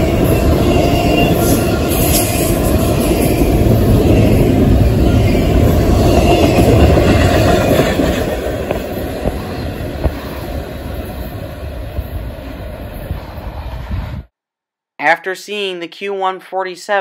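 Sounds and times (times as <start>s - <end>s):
train wheels clattering on track: 0.0s - 11.6s.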